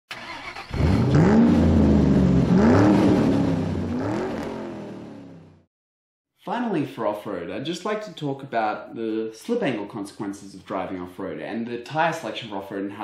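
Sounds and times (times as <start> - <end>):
racing car engine revving: 0.7 - 5.6.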